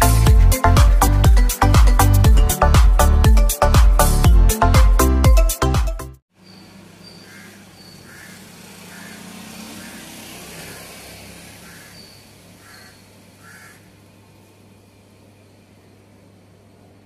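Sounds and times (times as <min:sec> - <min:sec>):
low hum of distant traffic: 0:06.3 - 0:17.0
bird calling: 0:06.4 - 0:14.0.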